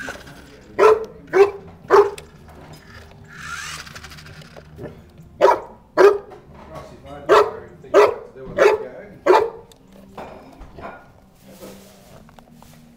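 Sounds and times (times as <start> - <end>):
dog barking: 0.8 - 2.3, 4.8 - 6.4, 7.2 - 9.7.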